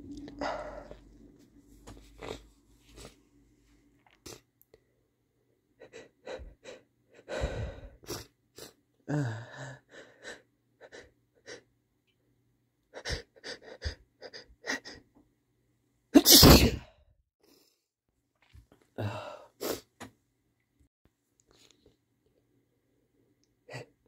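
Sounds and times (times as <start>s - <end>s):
man sniffing and gasping: 5.8s - 11.6s
man sneezing loudly: 16.2s - 16.9s.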